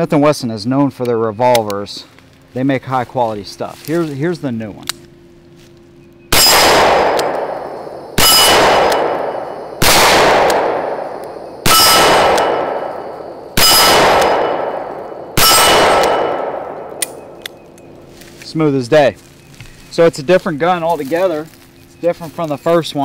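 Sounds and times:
revolver shots with ringing tail: 0:06.3 - 0:17.8.

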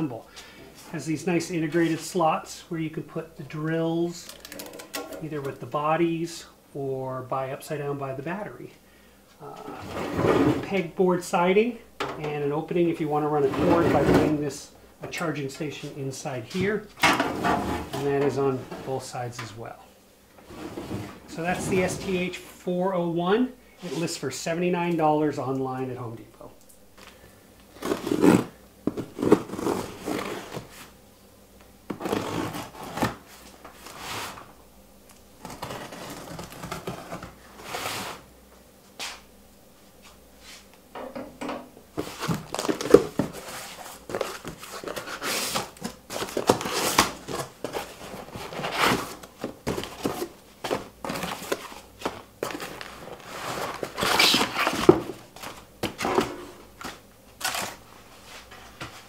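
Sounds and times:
cardboard flaps and inserts rustling: 0:04.1 - 0:05.7, 0:27.8 - 0:30.9, 0:35.4 - 0:38.2, 0:42.0 - 0:57.8.

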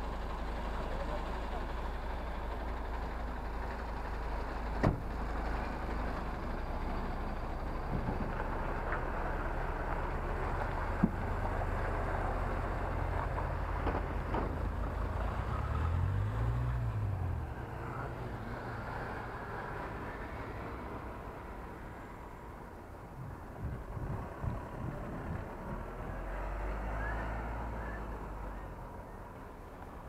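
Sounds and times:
lorry diesel engine idling: 0:00.0 - 0:30.0
passing vehicle engine: 0:00.0 - 0:30.0.

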